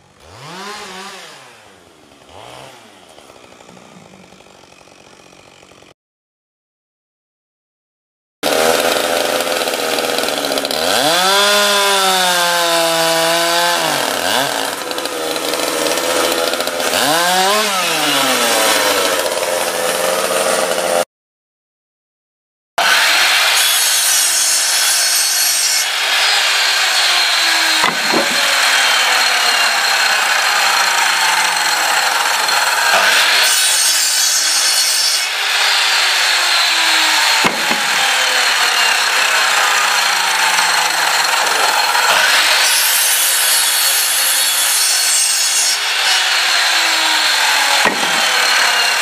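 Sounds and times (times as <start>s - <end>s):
chainsaw cutting log: 0.0s - 6.0s, 8.4s - 21.1s, 22.8s - 49.0s.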